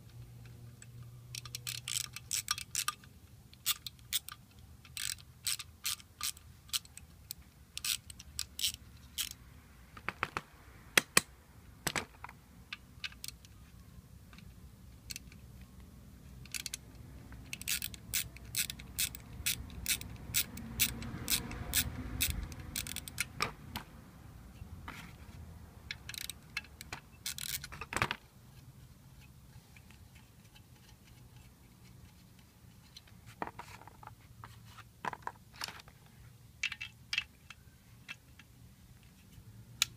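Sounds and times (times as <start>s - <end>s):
hand ratchet clicking: 1.3s - 9.4s, 16.4s - 16.8s, 17.5s - 23.4s, 25.9s - 27.8s.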